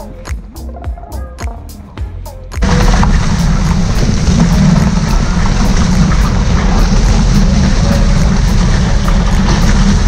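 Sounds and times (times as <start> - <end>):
background music with beat: 0.0 - 10.0
rushing wind: 2.6 - 10.0.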